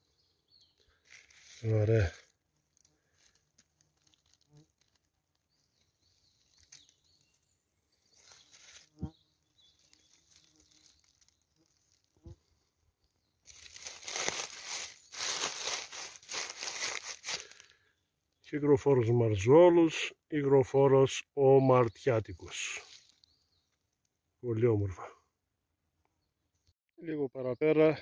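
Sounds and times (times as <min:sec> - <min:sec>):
dry leaves rustling and crackling: 0:01.0 - 0:12.6, 0:13.4 - 0:17.8, 0:22.7 - 0:23.4.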